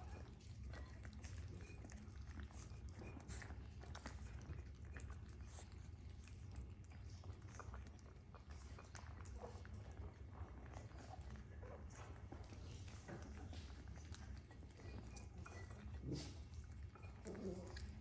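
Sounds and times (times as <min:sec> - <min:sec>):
puppies chewing and lapping: 0:00.0 - 0:18.0
teeth clicking on bowls: 0:00.0 - 0:18.0.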